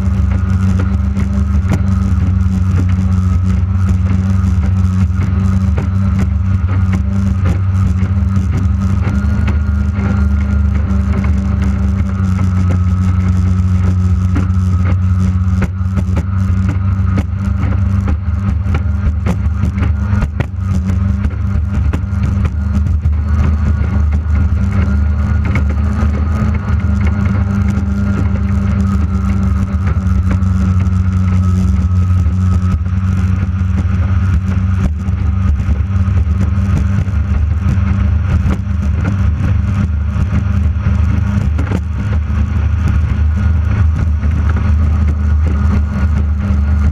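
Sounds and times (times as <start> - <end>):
racing boat engine high pitch: 0.0 - 46.9.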